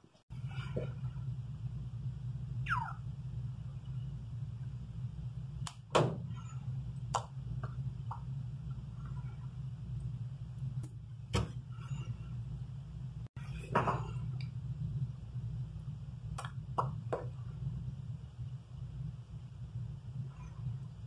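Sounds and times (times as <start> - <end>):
low room hum: 0.0 - 21.0.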